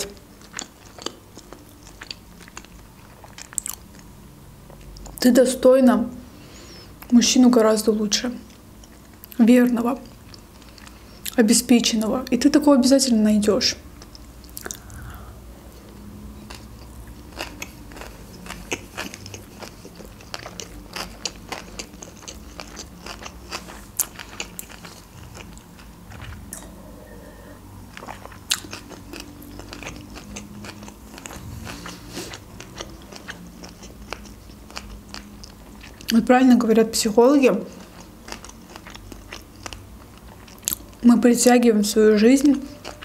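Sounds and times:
close chewing with wet clicks: 0.4s - 4.1s, 14.0s - 15.0s, 15.8s - 26.7s, 27.9s - 36.2s, 37.7s - 41.0s, 42.4s - 43.0s.

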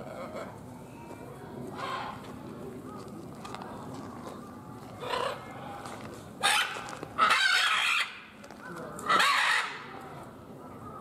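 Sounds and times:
macaws squawking: 6.4s - 8.2s, 9.1s - 9.9s.

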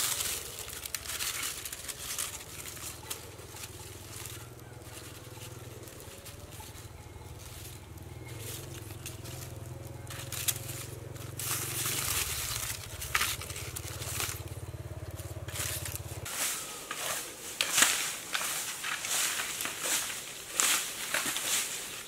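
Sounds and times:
fire crackling and snapping: 0.0s - 16.3s
dry leaves crunching: 0.0s - 22.0s.

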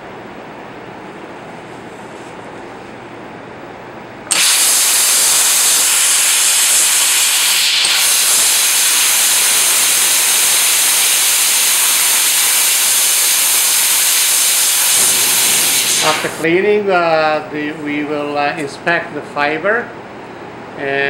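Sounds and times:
gas jet spraying hiss: 4.3s - 16.4s.

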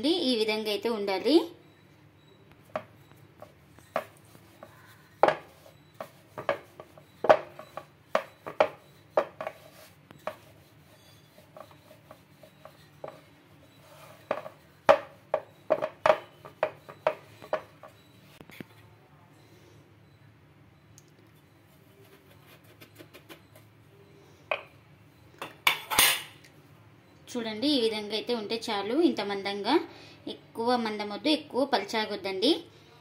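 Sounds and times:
rolling pin knocking on wooden board: 3.9s - 10.5s, 14.2s - 18.0s.

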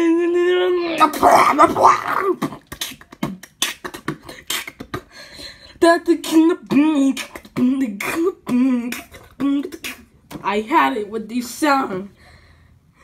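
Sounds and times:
person nasal vocalizing: 0.0s - 5.2s, 6.3s - 10.2s
mouth clicks and pops: 1.1s - 5.1s.

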